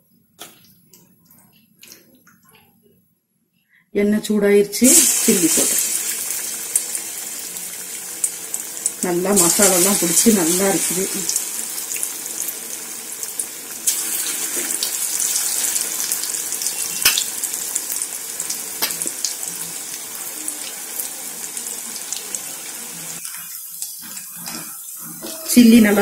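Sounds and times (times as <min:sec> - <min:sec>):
chicken deep-frying in oil: 0:04.8 - 0:26.0
sharp pops and crackles: 0:18.8 - 0:19.2.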